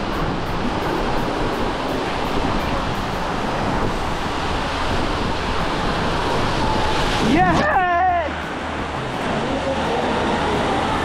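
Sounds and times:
rushing water: 0.0 - 11.0
wind on microphone: 0.0 - 11.0.

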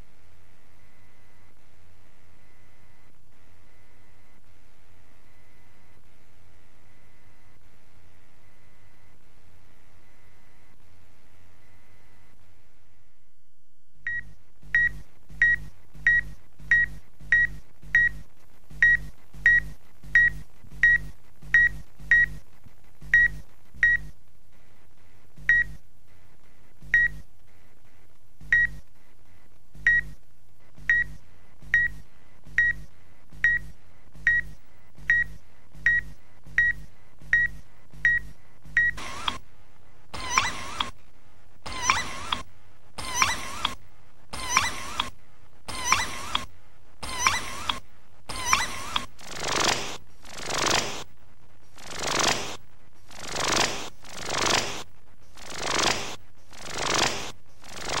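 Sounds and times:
faint steady hum: 0.0 - 58.0
short electronic beeps: 14.1 - 18.2, 18.8 - 22.4, 23.1 - 24.2, 25.5 - 25.8, 27.0 - 27.2, 28.5 - 28.8, 29.9 - 30.2, 30.9 - 31.2, 31.8 - 32.0, 32.6 - 39.4, 44.4 - 45.1, 45.7 - 51.0.

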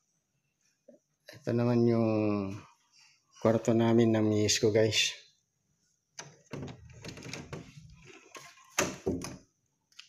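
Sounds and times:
door knob turning: 6.2 - 7.8.

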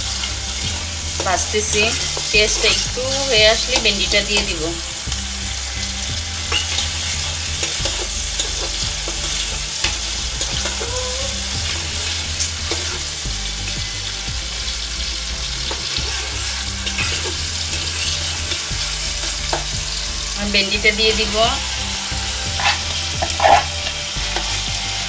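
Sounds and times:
onions sizzling in oil: 0.0 - 25.0
metal spoon scraping pan: 5.6 - 10.9, 15.5 - 20.0, 22.4 - 24.7.

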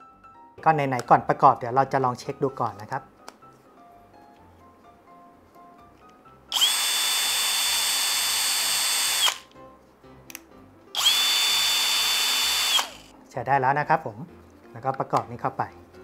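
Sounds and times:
cordless drill motor whine: 6.5 - 9.5, 11.0 - 13.1.

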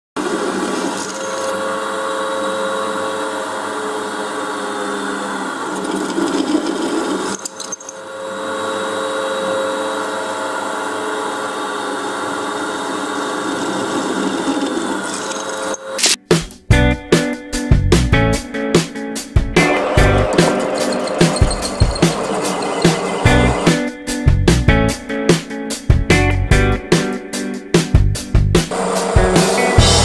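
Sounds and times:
drill press drilling into steel: 19.8 - 23.6.

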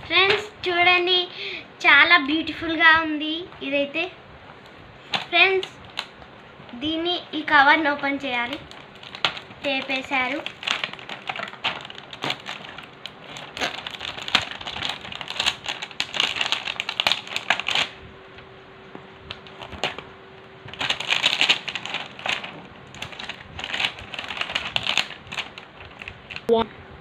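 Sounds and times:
plastic cover crackling: 0.0 - 0.6, 4.5 - 6.8, 7.4 - 26.5.

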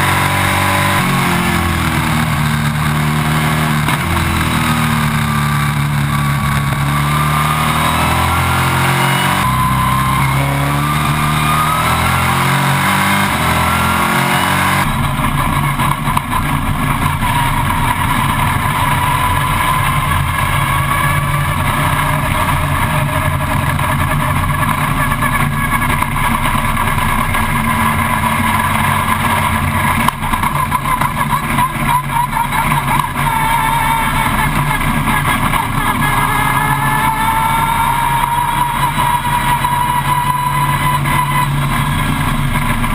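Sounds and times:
race car engine at low revs: 0.0 - 42.9.

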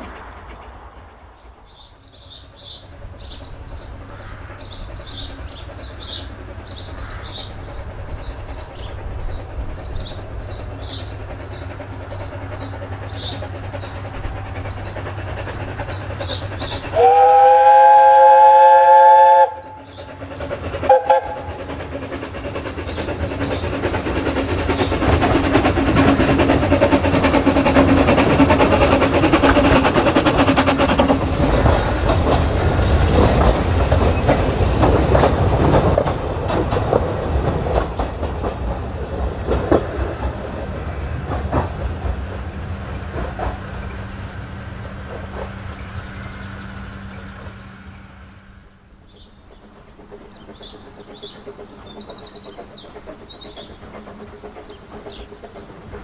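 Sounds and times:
train approaching: 0.0 - 56.0
steam locomotive whistle: 16.9 - 20.0, 20.8 - 21.6.

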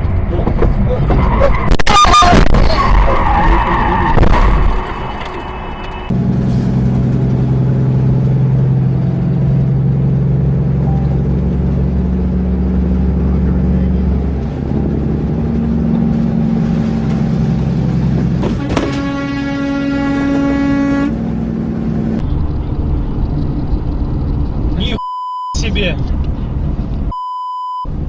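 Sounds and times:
vehicle engine drone: 0.0 - 27.2
horn blast: 18.4 - 21.4.

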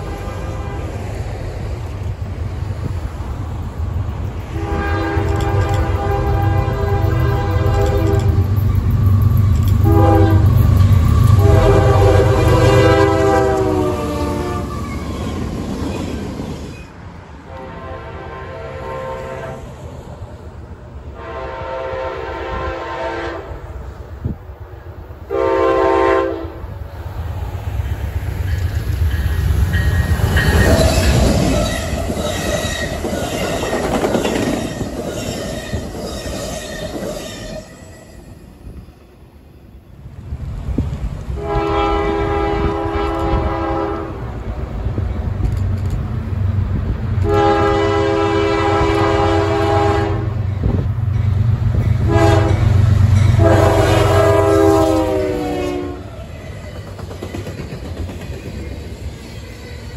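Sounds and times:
train horn blasts: 0.0 - 1.2, 4.5 - 8.5, 9.8 - 14.9, 17.5 - 19.8, 21.1 - 23.7, 25.3 - 26.7, 41.4 - 44.2, 47.2 - 50.8, 51.9 - 56.6
train wheels rumbling and clicking: 1.0 - 17.6, 27.2 - 37.8, 40.0 - 41.4, 42.6 - 55.4, 56.0 - 59.9.

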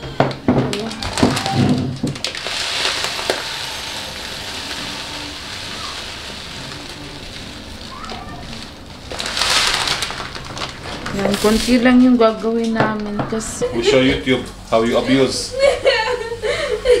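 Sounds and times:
dry rice rustling and pouring: 2.2 - 11.7.

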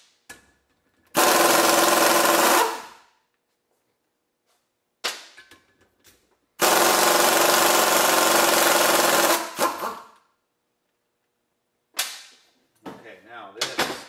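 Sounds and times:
pneumatic impact wrench hammering: 1.1 - 3.0, 6.6 - 10.2.

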